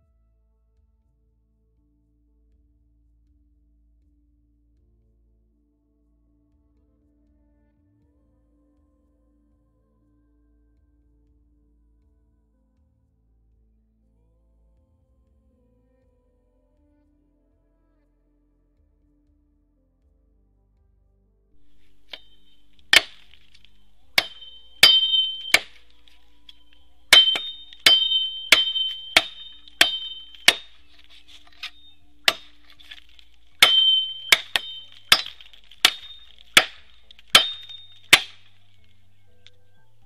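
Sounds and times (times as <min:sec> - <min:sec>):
machete chopping bamboo: 0:21.6 - 0:38.7.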